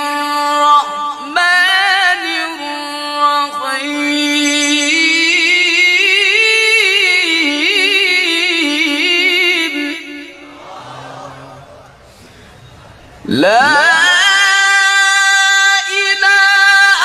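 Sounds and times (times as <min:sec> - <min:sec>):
man chanting recitation: 0:13.2 - 0:17.0.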